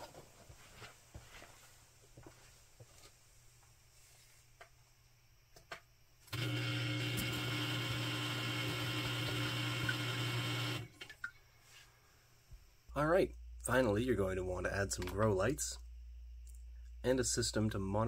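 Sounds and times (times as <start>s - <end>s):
small water pump humming: 6.3s - 11.4s.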